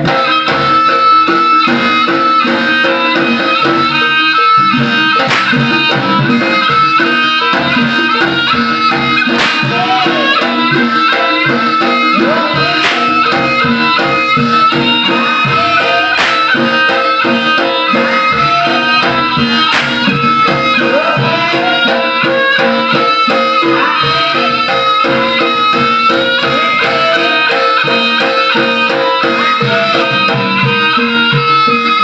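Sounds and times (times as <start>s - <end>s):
gamelan music with drums and gongs: 0.0s - 32.0s
sharp cracks: 5.3s - 5.6s.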